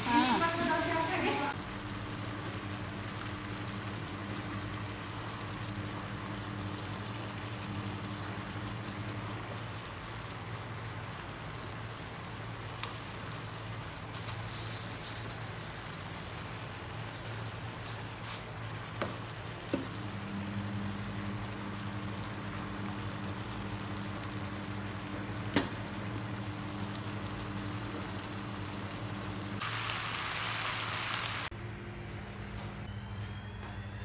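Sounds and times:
vegetables sizzling in frying pan: 0.0 - 31.5.

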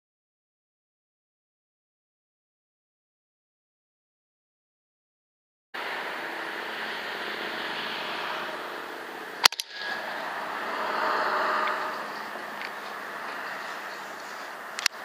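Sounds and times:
steady background hiss: 5.8 - 15.0
air rifle shot: 9.4 - 10.0
smaller crack: 9.4 - 10.0.

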